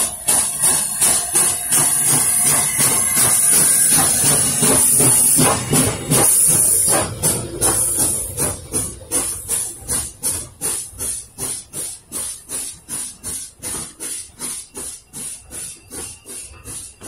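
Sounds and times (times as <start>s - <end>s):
steam locomotive chuffing: 0.0s - 17.0s.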